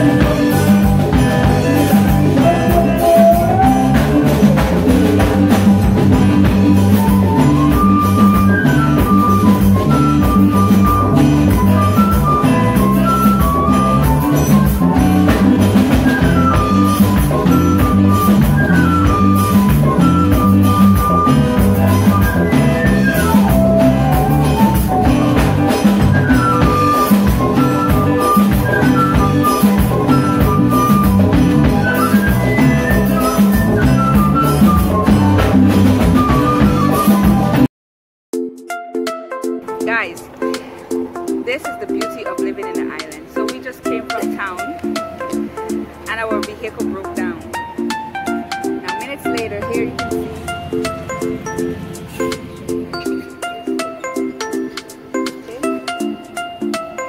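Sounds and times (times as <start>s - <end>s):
flute melody: 0.0s - 37.7s
live band playing: 0.0s - 37.7s, 38.3s - 57.0s.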